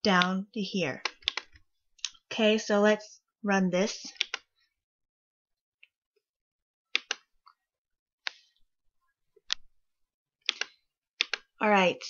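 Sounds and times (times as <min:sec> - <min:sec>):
computer mouse clicks: 0:01.0 - 0:02.2, 0:04.2 - 0:04.5, 0:06.9 - 0:07.6, 0:10.4 - 0:11.5.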